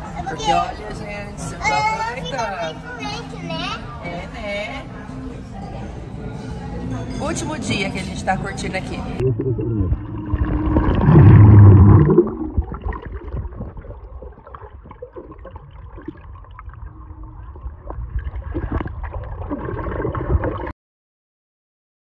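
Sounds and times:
muffled underwater bubbling: 9.2s - 20.7s.

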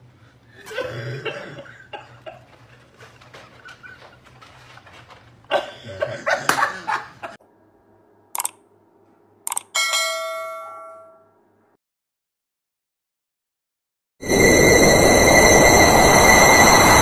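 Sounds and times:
bell chime: 9.8s - 11.4s.

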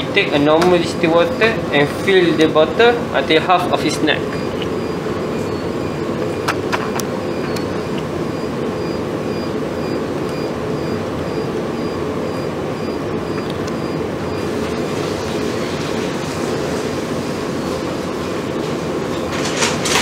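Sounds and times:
machine hum: 0.0s - 20.0s
faint pulsing high tone: 7.2s - 14.5s.

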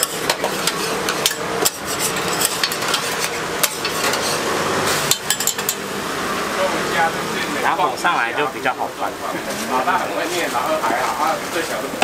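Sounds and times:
spatula scraping metal griddle: 0.0s - 5.8s
pancake sizzling on griddle: 0.0s - 12.0s.

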